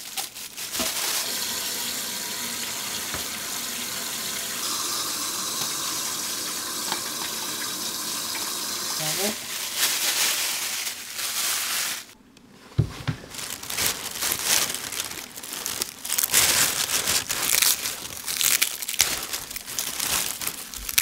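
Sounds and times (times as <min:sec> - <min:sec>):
plastic bag crinkling: 0:00.0 - 0:01.5, 0:09.0 - 0:12.2, 0:13.2 - 0:21.0
tap water running into sink: 0:00.8 - 0:09.2.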